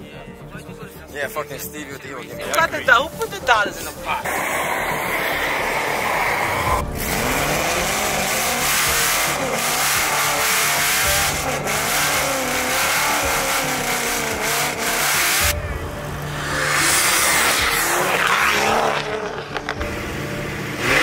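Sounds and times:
race car engines revving: 2.5s - 21.0s
tyre noise: 4.1s - 20.2s.

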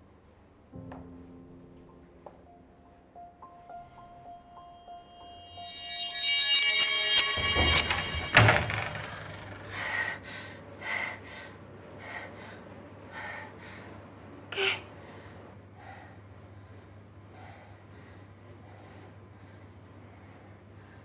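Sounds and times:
loud bang: 6.3s - 9.7s.

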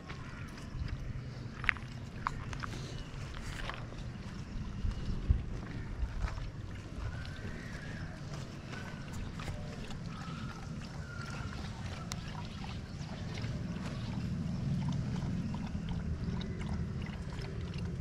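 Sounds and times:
wind rumble on microphone: 0.0s - 10.0s
bull slurping from bucket: 0.1s - 18.0s.

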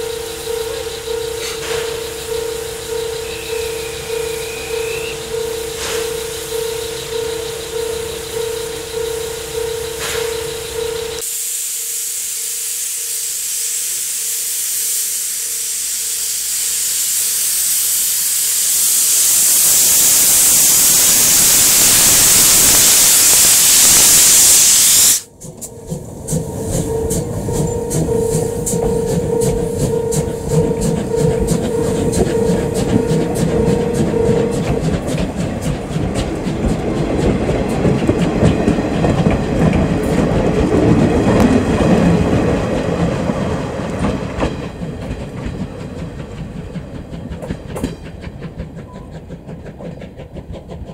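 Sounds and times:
train coaches rumbling past: 0.0s - 11.3s, 25.2s - 50.9s
steam hissing from locomotive: 0.0s - 50.9s.

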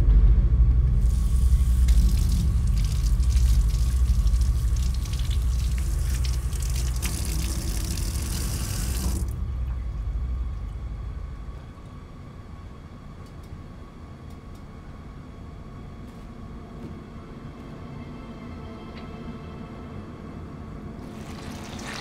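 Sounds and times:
low rumbling drone: 0.0s - 13.1s
tap water running into sink: 1.1s - 9.3s, 21.0s - 22.0s.

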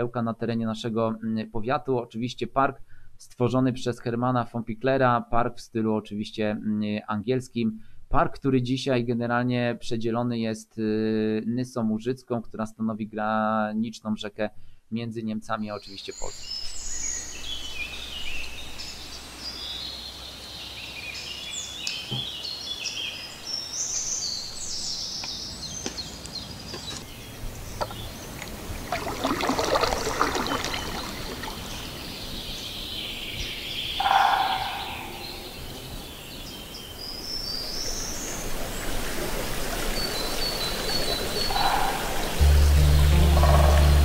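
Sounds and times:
small birds chirping and trilling: 15.8s - 28.9s, 29.9s - 39.0s, 39.9s - 44.0s
lower bird call: 29.8s - 36.1s, 40.0s - 44.0s.

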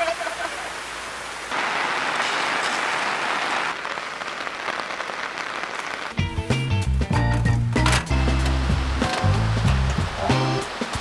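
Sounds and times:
runoff streaming off tarp: 0.0s - 6.3s, 8.4s - 11.0s
heavy rain on a tarp: 0.0s - 6.6s, 8.1s - 11.0s.

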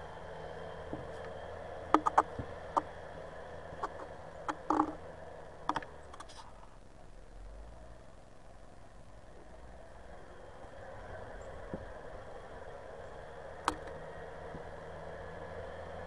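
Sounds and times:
distant loader engine drone: 0.0s - 16.0s
sharp clicks and knocks: 0.9s - 2.9s, 3.8s - 5.0s, 5.6s - 6.4s, 13.6s - 14.6s.

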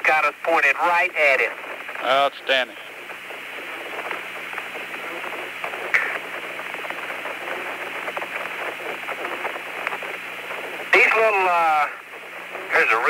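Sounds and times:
radio click: 0.0s - 13.0s
radio hiss and static: 0.0s - 13.0s.

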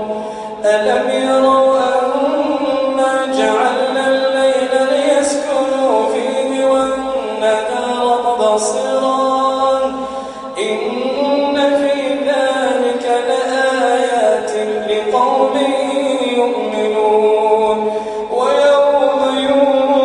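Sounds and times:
man chanting recitation: 0.0s - 20.0s.

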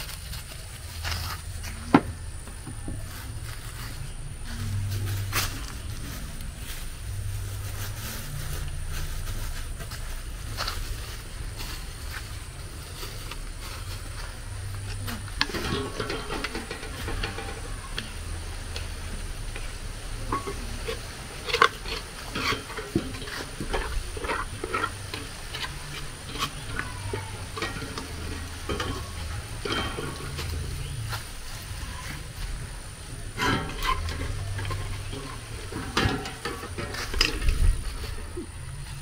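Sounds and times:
steady low hum: 0.0s - 39.0s
spoon scraping in a pot: 15.2s - 31.2s, 33.2s - 38.5s.

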